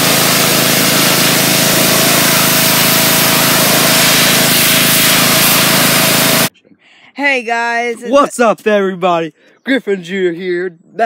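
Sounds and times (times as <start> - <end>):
high-pressure water jet hissing: 0.0 - 6.5
pump and motor hum: 0.0 - 6.5.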